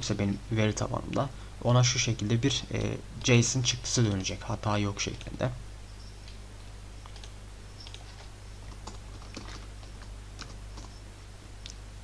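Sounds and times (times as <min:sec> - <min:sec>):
steady low hum: 0:00.0 - 0:12.0
typing on computer keyboard: 0:08.7 - 0:11.0.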